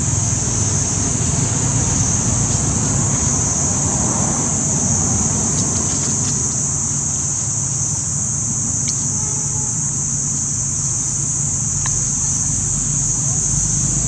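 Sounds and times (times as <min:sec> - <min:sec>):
high-pitched insect chorus: 0:00.0 - 0:14.0
steady low rumble: 0:00.0 - 0:14.0
faint ticks: 0:08.8 - 0:09.4, 0:11.7 - 0:12.5.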